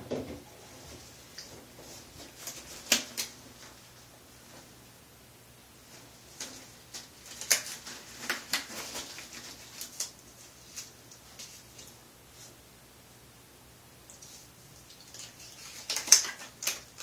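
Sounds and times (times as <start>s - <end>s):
disposable glove crinkling: 1.4s - 3.8s, 5.9s - 12.6s, 14.2s - 17.0s.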